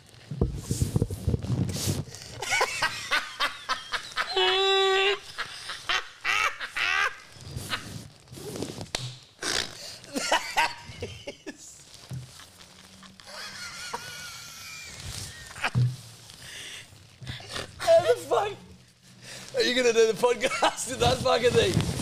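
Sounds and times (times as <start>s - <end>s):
hysterical laughter with shrieks: 2.4s - 8.0s, 13.0s - 15.8s.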